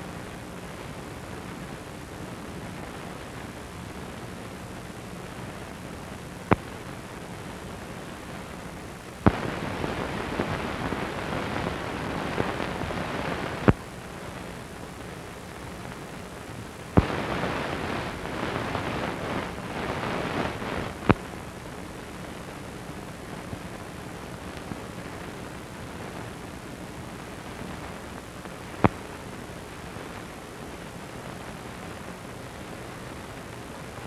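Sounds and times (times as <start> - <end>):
crackly hiss: 0.0 - 34.0
film soundtrack hiss: 0.0 - 34.0
sharp pop: 9.3 - 9.5.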